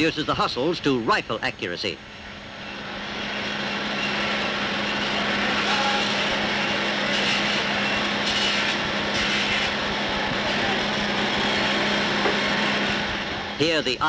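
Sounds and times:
constant hum: 0:00.0 - 0:14.0
machine cutting metal: 0:03.9 - 0:13.0.

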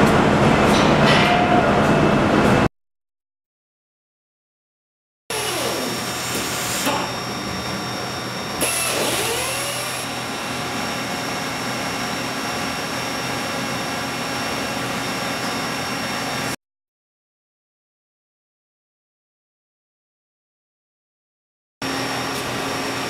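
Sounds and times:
waterjet cutter hissing: 0:05.3 - 0:16.6.

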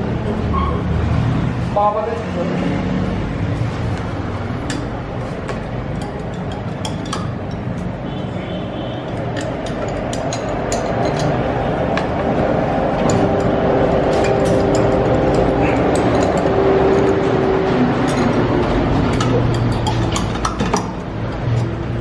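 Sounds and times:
steady background hum: 0:00.0 - 0:22.0
metallic clicks and clinks: 0:09.0 - 0:11.5, 0:18.0 - 0:21.0.

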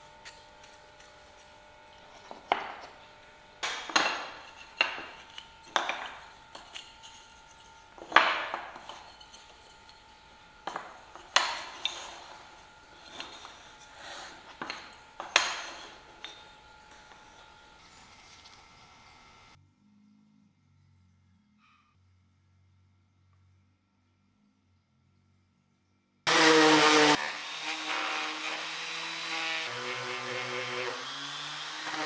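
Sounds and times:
wooden strips clacking: 0:03.6 - 0:17.3.

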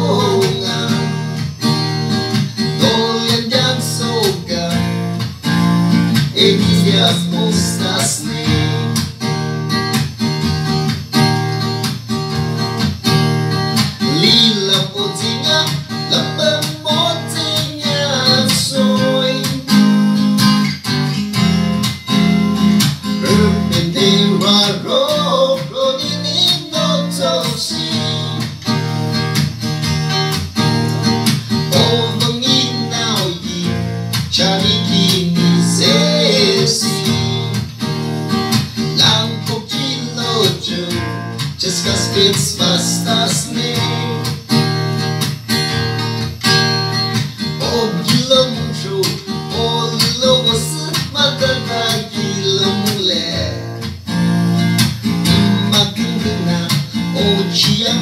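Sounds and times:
man singing: 0:00.0 - 0:01.4, 0:02.5 - 0:05.2, 0:06.1 - 0:09.1, 0:14.0 - 0:20.2, 0:23.1 - 0:28.7, 0:31.4 - 0:37.9, 0:38.8 - 0:44.6, 0:47.3 - 0:53.8, 0:55.2 - 0:58.0
acoustic guitar strumming: 0:00.0 - 0:58.0.

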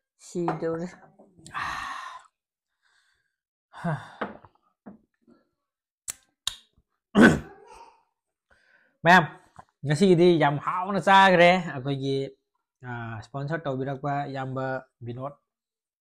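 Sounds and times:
breathy sigh: 0:01.5 - 0:02.3, 0:02.9 - 0:04.4.

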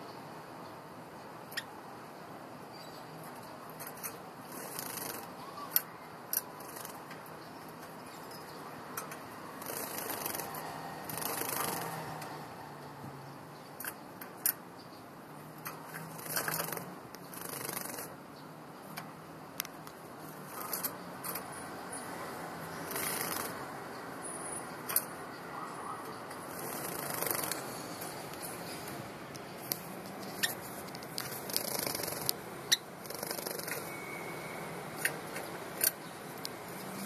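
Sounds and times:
bird feet and beaks tapping bars: 0:03.2 - 0:12.4, 0:13.8 - 0:14.7, 0:15.6 - 0:18.1, 0:26.2 - 0:32.4
birds rustling: 0:26.3 - 0:32.4.

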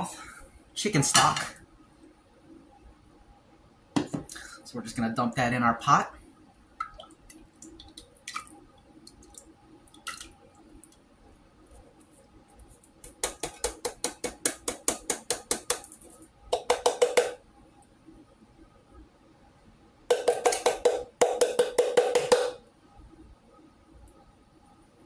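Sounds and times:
tin can knocking on saucepan: 0:13.2 - 0:15.9, 0:16.5 - 0:17.4, 0:20.1 - 0:22.6.

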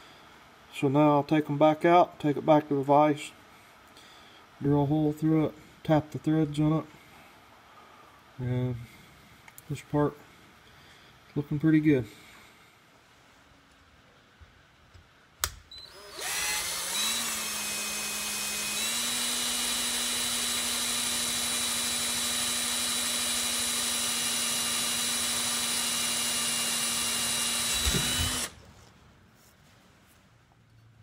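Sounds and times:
drill trigger click: 0:15.4 - 0:28.6
power drill motor whining: 0:15.7 - 0:28.6.

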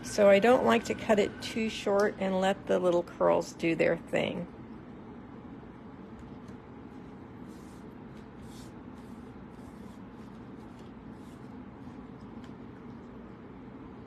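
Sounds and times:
low room hum: 0:00.0 - 0:14.0
paper rustling: 0:07.4 - 0:13.3.

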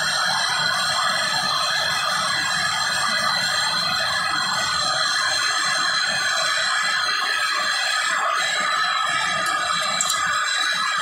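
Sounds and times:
gas torch hissing: 0:00.0 - 0:11.0
steady high tones: 0:08.6 - 0:11.0.

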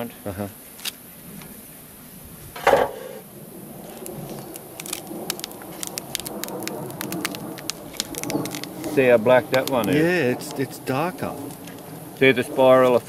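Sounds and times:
bees buzzing: 0:01.6 - 0:13.0
hive lid seal crackling: 0:02.6 - 0:12.2.

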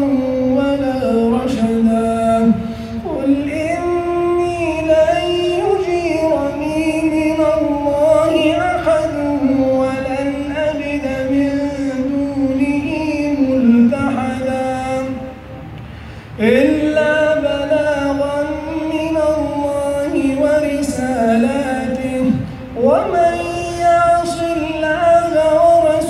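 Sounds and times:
man chanting recitation: 0:00.0 - 0:15.5, 0:16.4 - 0:26.0
short breath: 0:02.6 - 0:03.0, 0:15.8 - 0:16.4.

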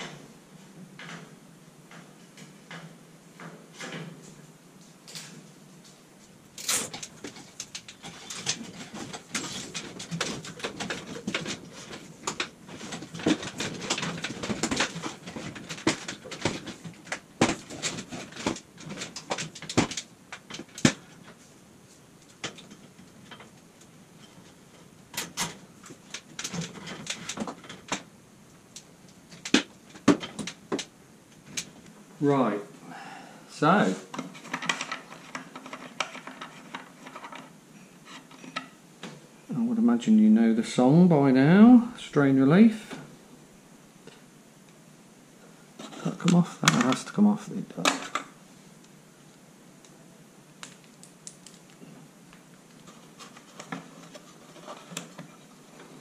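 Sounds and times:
clicks taps and rattles of parts: 0:06.9 - 0:21.4, 0:22.2 - 0:28.1, 0:28.7 - 0:31.8, 0:34.1 - 0:37.5, 0:45.8 - 0:47.2, 0:47.8 - 0:48.4, 0:50.6 - 0:56.0.

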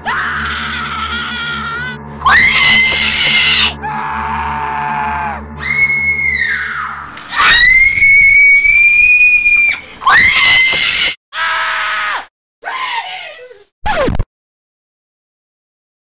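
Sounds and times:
man screaming: 0:00.0 - 0:06.2.

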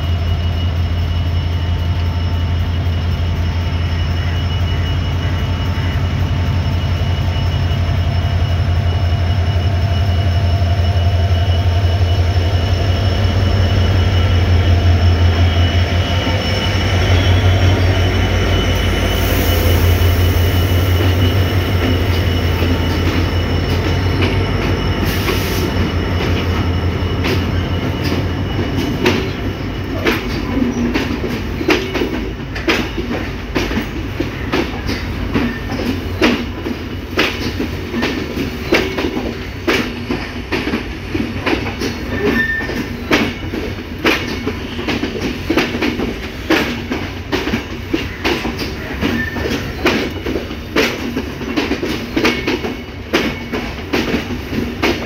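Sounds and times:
diesel locomotive engine drone: 0:00.0 - 0:55.0
train coaches rumbling: 0:00.0 - 0:55.0
wheels clacking over rail joints: 0:21.0 - 0:55.0.

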